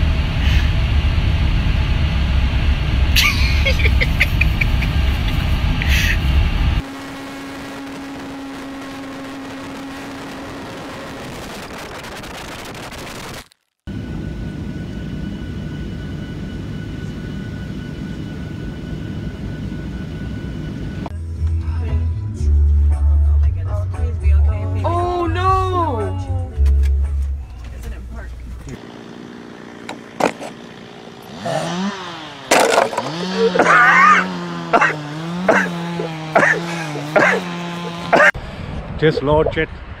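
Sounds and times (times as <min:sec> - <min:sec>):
jet engine rumble: 0:00.0 - 0:13.0, 0:13.9 - 0:21.1
model airplane engine running: 0:28.8 - 0:38.3.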